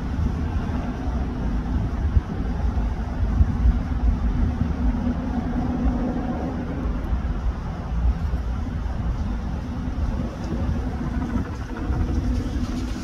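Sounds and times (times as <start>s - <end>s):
turbine engine hum: 0.0s - 13.0s
helicopter rotor thudding: 9.7s - 13.0s.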